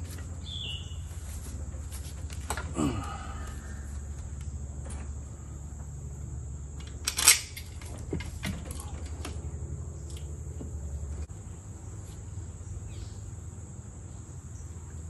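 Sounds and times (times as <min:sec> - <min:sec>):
metal parts clinking: 0:06.8 - 0:09.3.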